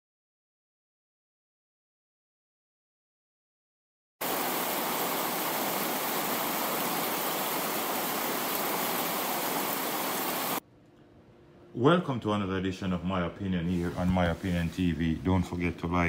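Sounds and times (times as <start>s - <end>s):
static-like hiss: 4.2s - 10.6s.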